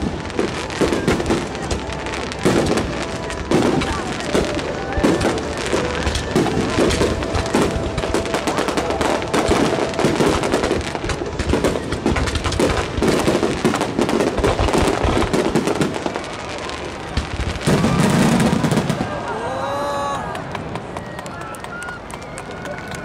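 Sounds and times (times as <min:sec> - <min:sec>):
firework shells bursting: 0:00.0 - 0:16.2.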